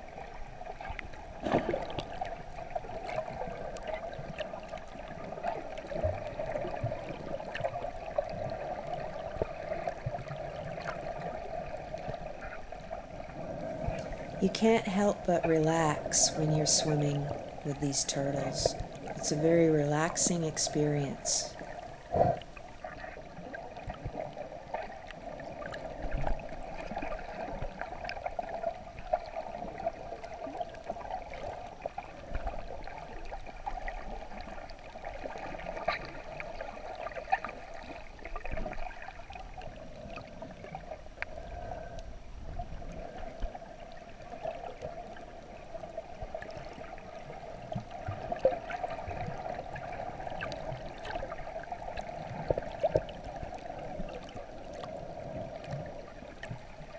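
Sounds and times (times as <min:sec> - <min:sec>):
faint underwater clicks and crackles: 0:00.0 - 0:56.9
underwater watery wash: 0:00.0 - 0:56.9.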